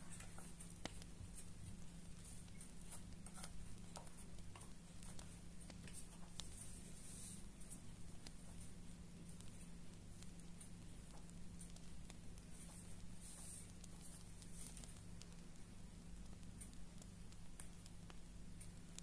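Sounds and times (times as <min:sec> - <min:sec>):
low background hum: 0:00.0 - 0:19.0
soft rustling of thread: 0:00.0 - 0:19.0.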